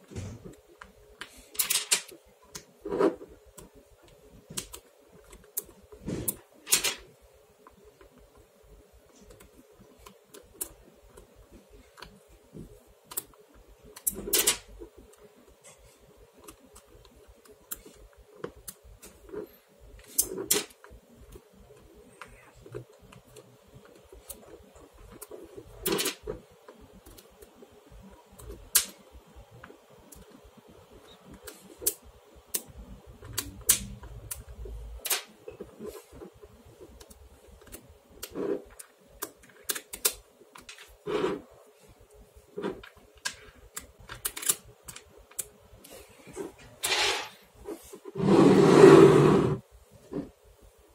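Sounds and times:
magnetic balls clicking together: 0.5 - 41.0.

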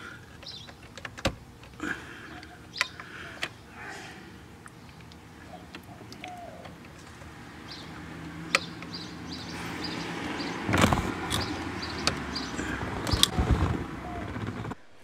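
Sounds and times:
wires clicking and rustling: 0.2 - 3.6, 4.6 - 9.0.

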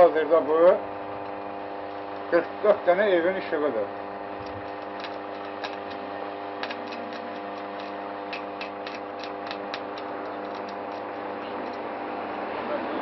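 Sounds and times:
transformer electrical hum: 0.0 - 13.0
sharp clicks: 4.4 - 11.8.

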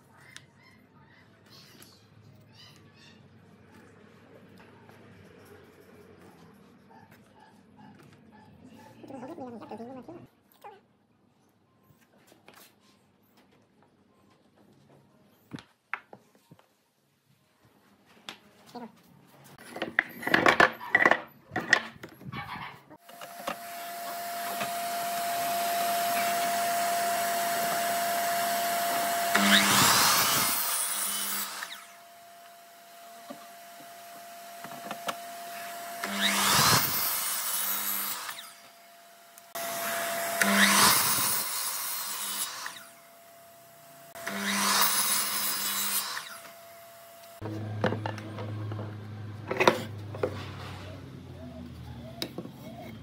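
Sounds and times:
miter saw cutting wood: 23.0 - 49.8.

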